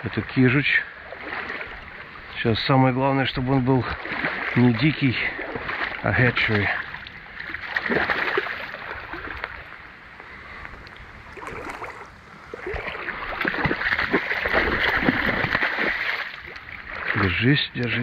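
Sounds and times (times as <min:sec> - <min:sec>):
running water: 0:00.0 - 0:18.0
fish thrashing water splashing: 0:01.1 - 0:02.0, 0:03.6 - 0:09.8, 0:11.3 - 0:17.5.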